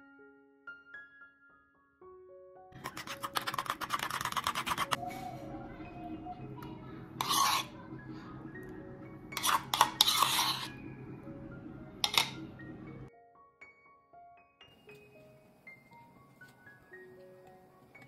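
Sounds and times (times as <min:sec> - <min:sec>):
soft background music: 0:00.0 - 0:18.0
fork beating against bowl: 0:02.8 - 0:05.0, 0:07.2 - 0:07.8, 0:09.3 - 0:10.8, 0:12.0 - 0:12.4
spoon scraping yogurt into bowl: 0:02.8 - 0:05.0, 0:07.2 - 0:07.8, 0:09.3 - 0:10.8.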